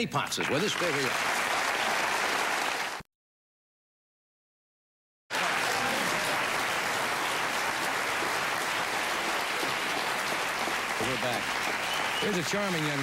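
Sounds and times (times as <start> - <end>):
audience applauding: 0.4 - 3.0, 5.3 - 13.0.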